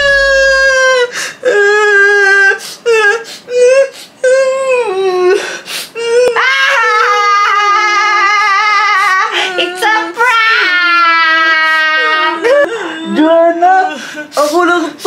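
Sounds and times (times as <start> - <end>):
falsetto theatrical crying: 0.0 - 2.6.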